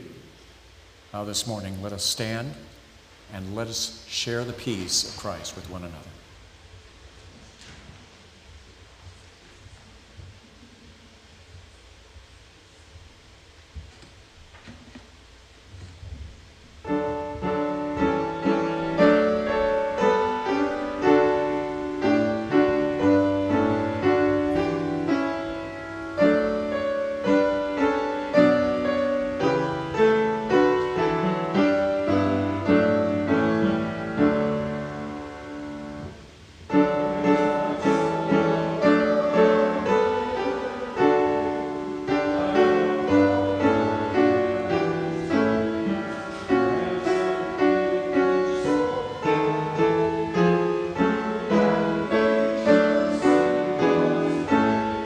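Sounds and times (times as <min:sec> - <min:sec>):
piano playing hymn chords: 0:00.0 - 0:00.2, 0:16.8 - 0:55.0.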